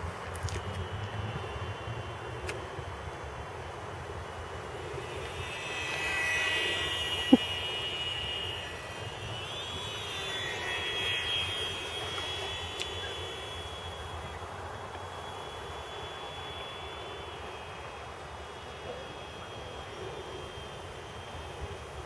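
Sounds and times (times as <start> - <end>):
small propeller motor whining: 0.0 - 22.0.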